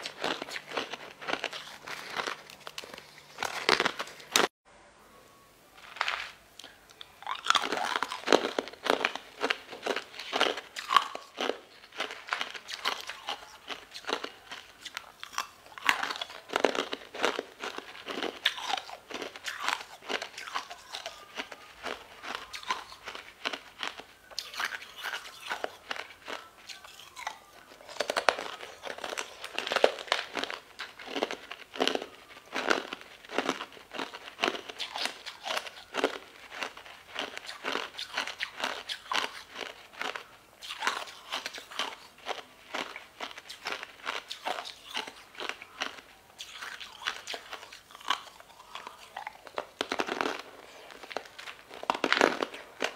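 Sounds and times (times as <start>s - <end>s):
ice being crunched: 0.0s - 4.5s.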